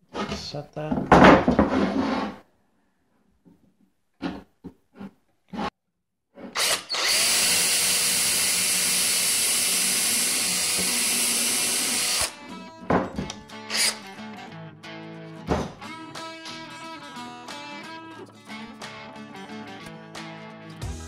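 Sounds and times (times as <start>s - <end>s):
cordless drill boring wood: 6.6s - 12.4s, 13.7s - 14.0s
guitar music: 12.4s - 21.0s.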